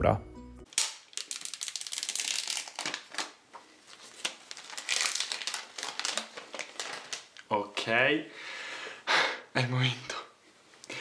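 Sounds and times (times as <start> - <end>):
plastic wrap crinkling: 0.7 - 7.5.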